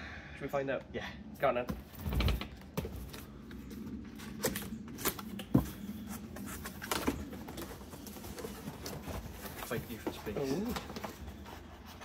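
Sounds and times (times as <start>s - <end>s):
cardboard boxes being opened: 2.8s - 12.0s.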